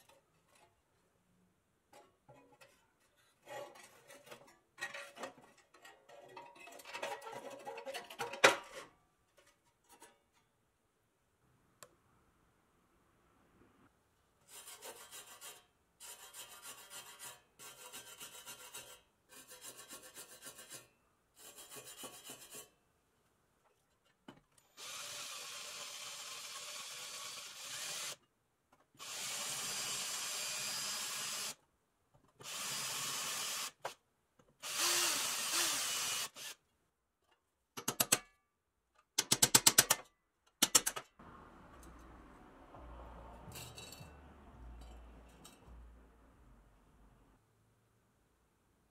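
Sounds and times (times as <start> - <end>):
power drill drilling metal: 24.7 - 28.2, 29.0 - 31.6, 32.4 - 34.0, 34.6 - 36.6.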